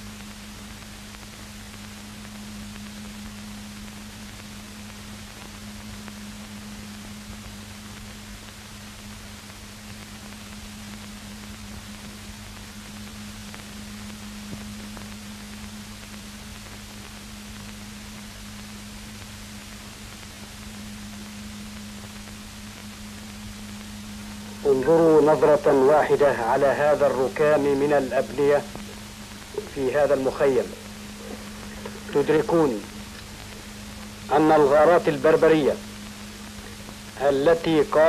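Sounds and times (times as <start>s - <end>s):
film soundtrack hiss: 0.0s - 38.0s
low hum: 20.7s - 38.0s.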